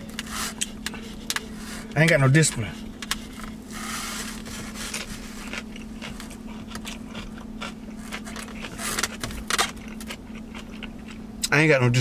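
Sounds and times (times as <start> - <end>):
steady low hum: 0.0 - 12.0
chewing: 2.7 - 11.5.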